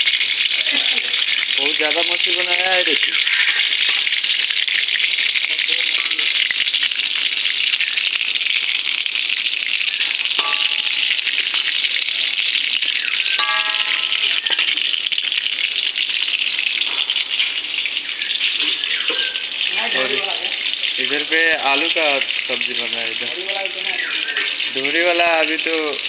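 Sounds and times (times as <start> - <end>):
fish sizzling in hot oil: 0.0 - 26.0
metal spatula clinking on wok: 10.4 - 11.1, 13.4 - 14.7.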